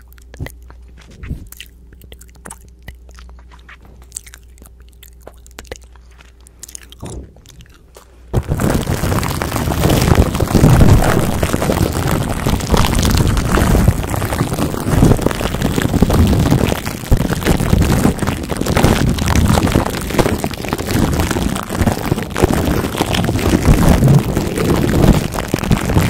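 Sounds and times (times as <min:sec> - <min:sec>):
plastic wrap crinkling: 0:00.0 - 0:26.0
microphone handling rumble: 0:00.3 - 0:01.5, 0:07.0 - 0:26.0.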